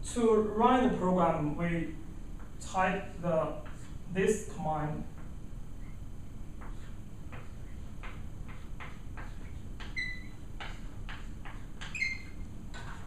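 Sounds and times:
chalk writing on chalkboard: 3.6s - 4.0s, 6.6s - 13.0s
chalk squeaks: 9.2s - 13.0s.

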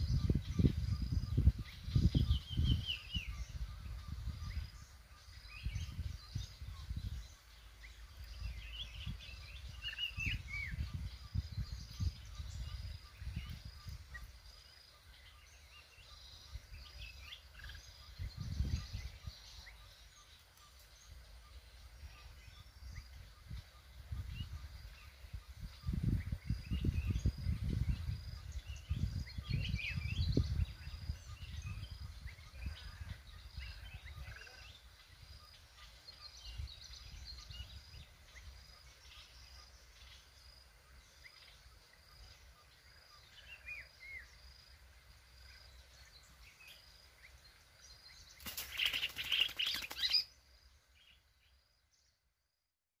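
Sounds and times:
wind buffeting microphone: 0.0s - 7.6s, 8.2s - 14.2s, 17.6s - 19.4s, 22.0s - 34.5s
birds chirping and whistling: 0.0s - 14.6s, 15.2s - 41.7s, 48.1s - 50.4s.

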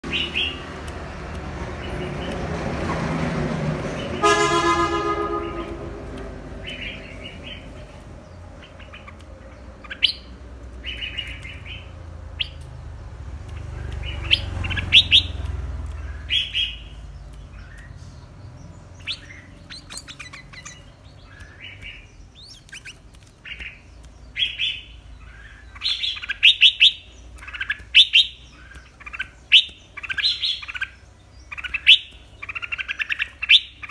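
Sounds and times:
bird chirping: 0.0s - 33.9s
horn: 4.2s - 5.9s.

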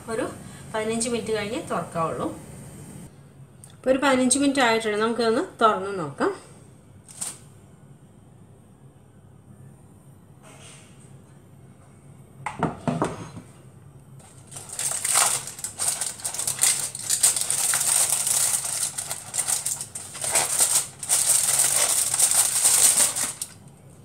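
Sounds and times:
aluminium foil crinkling: 7.1s - 7.4s, 14.2s - 23.8s.

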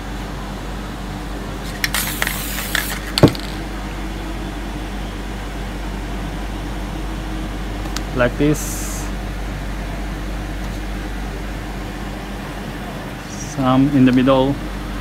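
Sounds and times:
low hum: 0.0s - 15.0s.

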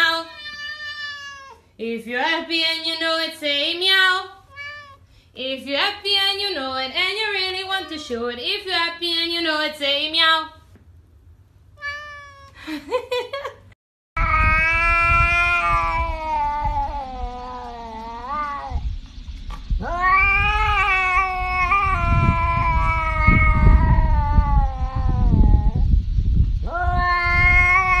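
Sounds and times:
cat yowling: 0.0s - 1.7s, 4.5s - 5.0s, 7.4s - 8.2s, 11.8s - 12.6s, 14.2s - 18.8s, 19.8s - 25.8s, 26.7s - 28.0s
low rumble: 14.2s - 28.0s.

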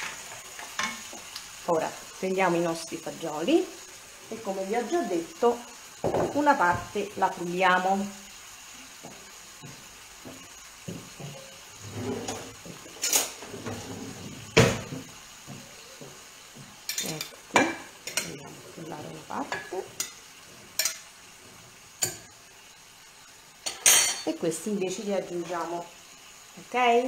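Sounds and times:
faint sizzling in frying pan: 0.0s - 27.0s
utensils clinking against dishes: 16.9s - 18.4s, 20.8s - 21.0s, 23.6s - 24.3s.

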